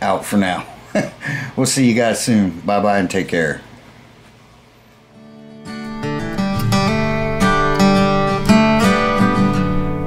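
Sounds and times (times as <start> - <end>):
guitar music: 5.1 - 10.0.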